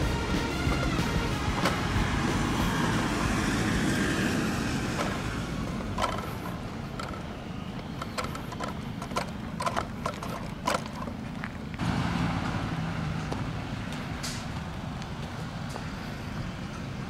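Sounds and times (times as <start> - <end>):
footsteps crunching on gravel: 7.2 - 12.6, 13.2 - 16.5.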